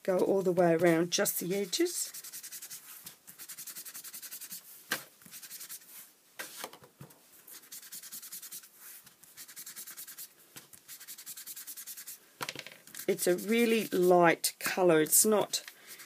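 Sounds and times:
sponge rubbing on card: 1.5s - 6.1s, 7.5s - 12.2s, 12.9s - 14.2s.

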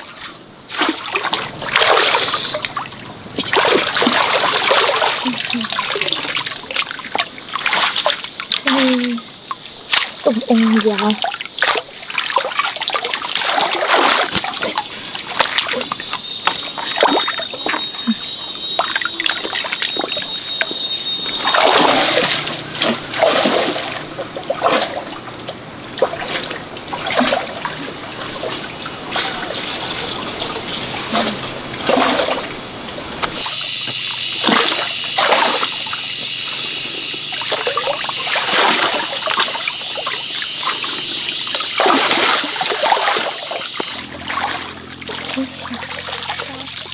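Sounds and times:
water splashing in stream: 0.0s - 36.4s, 37.1s - 46.9s
high-pitched whine: 15.3s - 37.3s.

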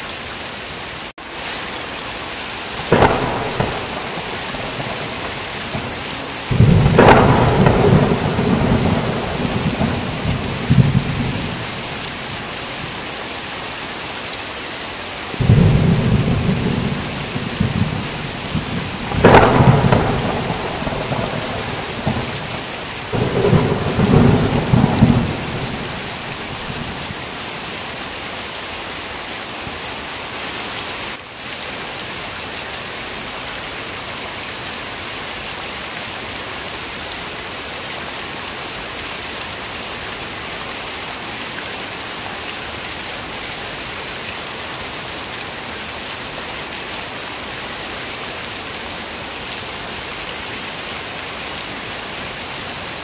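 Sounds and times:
heavy rain: 0.0s - 53.0s
thunder claps and rumble: 2.8s - 12.5s, 15.4s - 27.6s.

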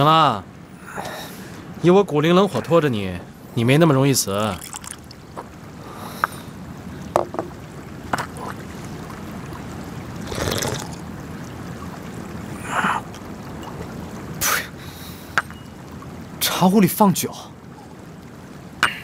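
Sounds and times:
wind-like outdoor hiss: 0.0s - 19.0s
person sipping from cup: 10.3s - 11.0s.

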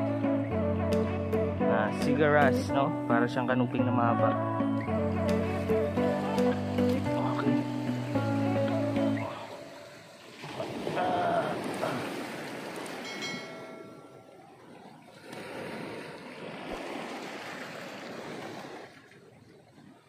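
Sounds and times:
sea surf on rocky shore: 5.4s - 19.5s.

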